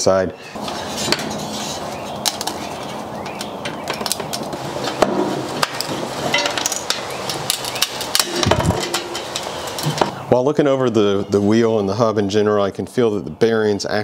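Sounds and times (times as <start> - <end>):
plastic disc cracking and clicking: 3.2 - 4.6.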